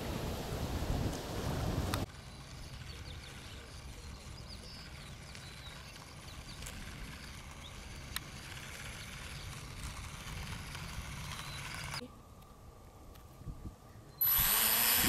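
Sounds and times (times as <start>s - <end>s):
wind rumble on microphone: 0.0s - 2.1s, 13.3s - 15.0s
toy car rolling on asphalt: 2.0s - 12.0s.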